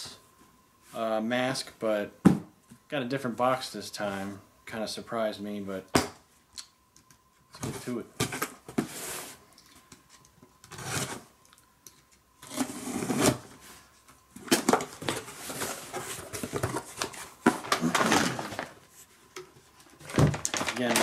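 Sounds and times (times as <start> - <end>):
cardboard flaps rustling: 14.4 - 21.0.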